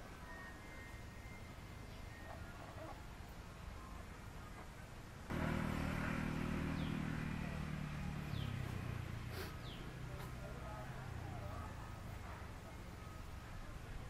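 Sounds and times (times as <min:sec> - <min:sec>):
vehicle engine running: 0:05.3 - 0:13.4.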